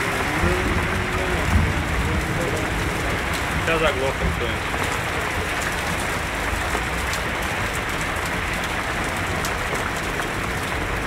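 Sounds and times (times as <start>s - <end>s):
heavy rain pouring: 0.0s - 11.0s
low rumble: 0.2s - 5.1s.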